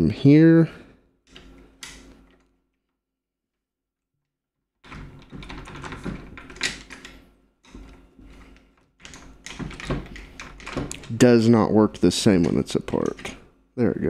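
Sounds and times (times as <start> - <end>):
lock levers clicking and scraping: 1.3 - 2.5, 4.8 - 11.4, 12.0 - 13.4
key turning in lock mechanism: 4.8 - 11.3.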